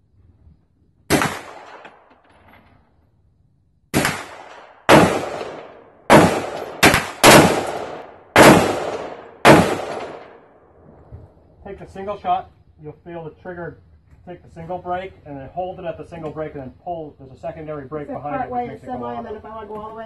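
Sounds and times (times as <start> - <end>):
machine gun single shots: 1.1 - 2.1, 3.9 - 10.4.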